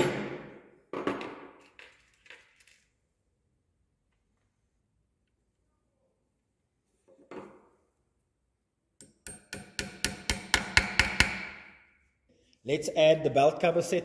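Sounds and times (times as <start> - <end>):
hammer tapping metal pin: 9.0 - 11.5.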